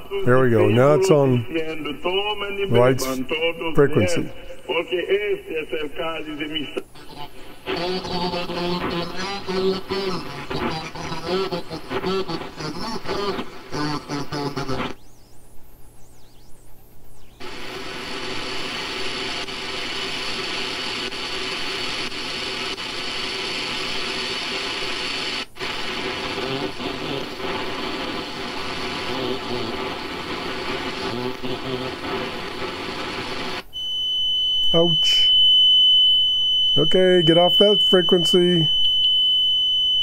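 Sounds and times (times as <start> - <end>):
radio static: 0.0 - 15.1, 17.2 - 33.6, 34.7 - 35.3, 36.8 - 38.9
steady whistling tones: 33.8 - 40.0.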